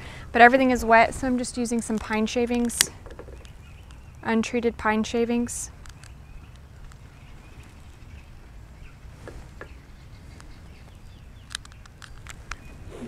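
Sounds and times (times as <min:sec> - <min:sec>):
soft clicks: 0:09.3 - 0:12.7.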